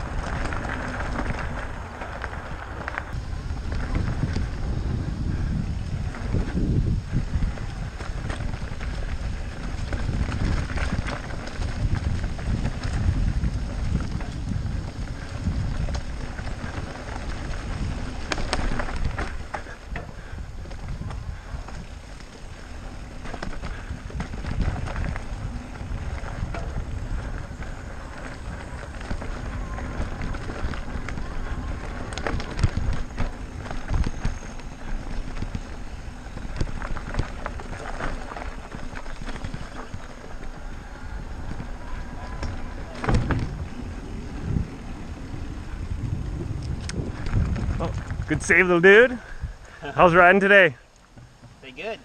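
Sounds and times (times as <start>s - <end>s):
bike rattling over ground: 0.0s - 52.0s
tyres crunching over leaves: 0.0s - 52.0s
wind rumble on microphone: 0.0s - 52.0s.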